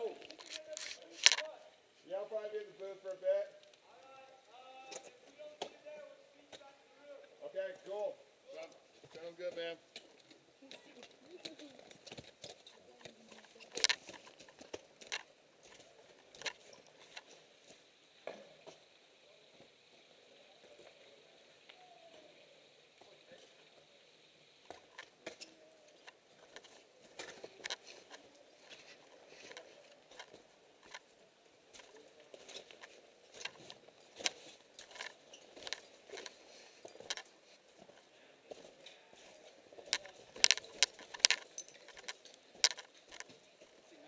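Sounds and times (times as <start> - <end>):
footsteps crunching on snow and rock: 0.0 - 1.4
light metallic clinks: 38.8 - 43.8.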